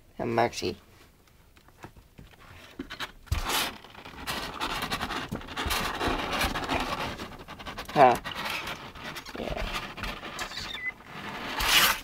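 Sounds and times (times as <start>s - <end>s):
kittens scrabbling in cardboard box: 2.8s - 12.0s.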